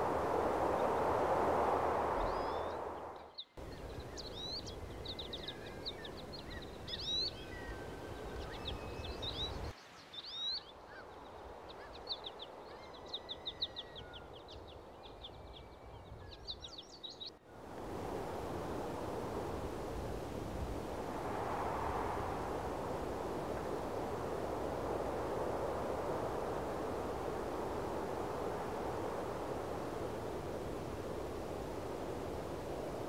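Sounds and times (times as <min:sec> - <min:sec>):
faint outdoor hiss: 0:00.0 - 0:33.0
small birds chirping and trilling: 0:02.2 - 0:17.4.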